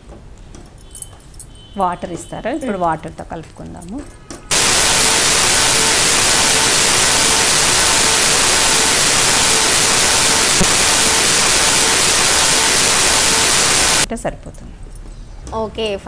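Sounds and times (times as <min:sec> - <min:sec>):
loud static hiss: 0:04.5 - 0:14.1.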